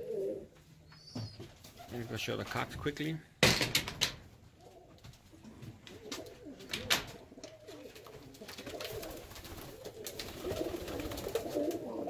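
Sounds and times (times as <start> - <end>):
pigeons cooing: 0.0 - 2.0, 4.6 - 12.0.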